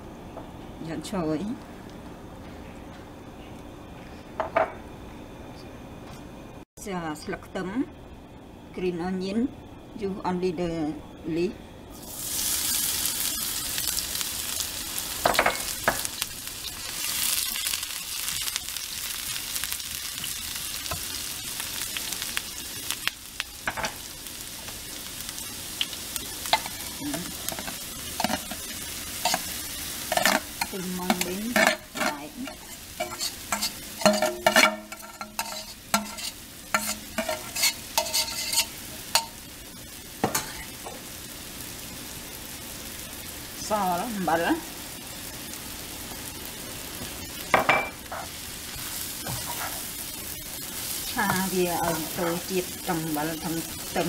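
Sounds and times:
onion sizzling in hot oil: 11.4s - 54.0s
utensil clinking against bowl and pan: 30.1s - 39.4s.

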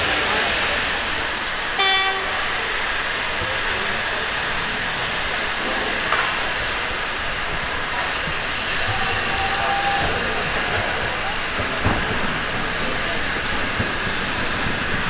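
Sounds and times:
steam locomotive hissing: 0.0s - 15.0s.

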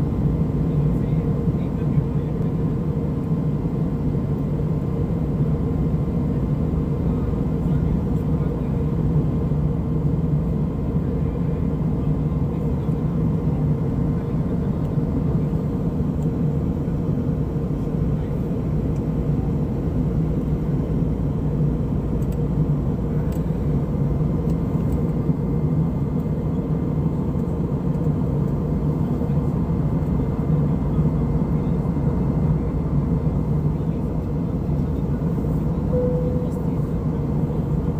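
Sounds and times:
faint steady hum: 0.0s - 37.9s
low rumble of jet engines: 0.0s - 37.9s.

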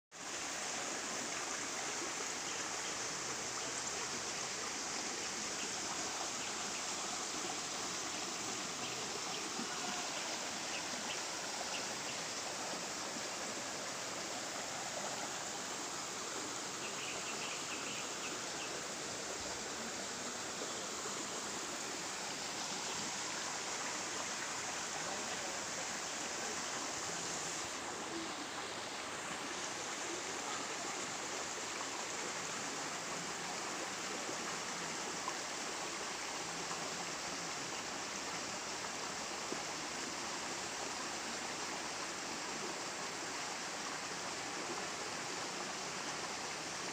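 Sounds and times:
stream rushing over stones: 0.1s - 46.9s.

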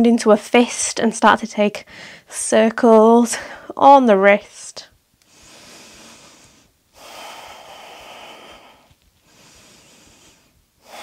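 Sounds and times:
woman breathing deeply: 1.9s - 2.3s, 5.2s - 11.0s.

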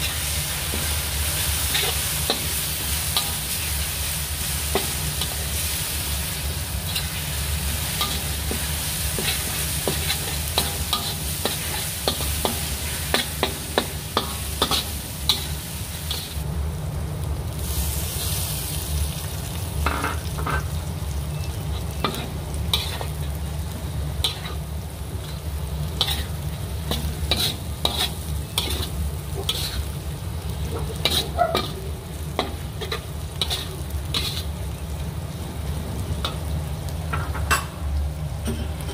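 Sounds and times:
food sizzling in a pan: 0.0s - 38.9s
spatula scraping a pan: 7.9s - 15.5s, 21.8s - 23.1s, 26.0s - 29.9s, 30.7s - 31.8s, 32.4s - 34.5s.

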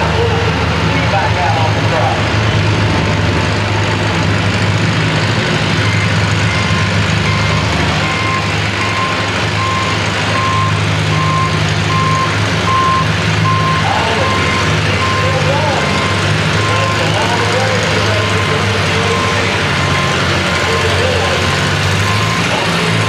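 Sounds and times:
tractor engine running: 0.0s - 23.0s
backup alarm beeping: 5.8s - 17.7s.

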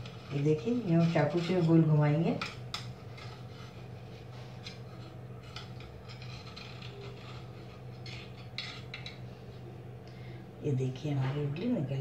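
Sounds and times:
knife scraping metal plate: 0.0s - 9.5s.

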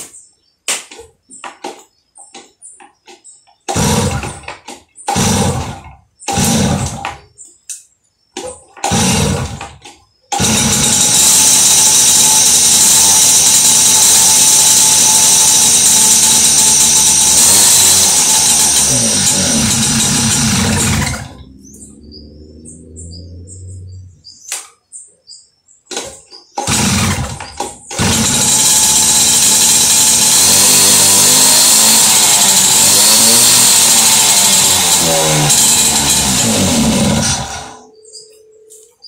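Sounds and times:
birds chirping: 0.0s - 10.4s, 18.1s - 28.0s, 36.7s - 39.0s
two-stroke moped engine: 3.7s - 7.2s, 8.8s - 22.1s, 25.9s - 37.9s.

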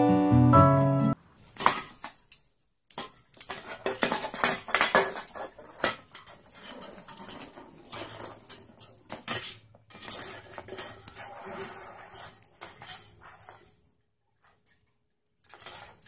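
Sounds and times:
metal can rattling on wooden floor: 2.9s - 13.7s.

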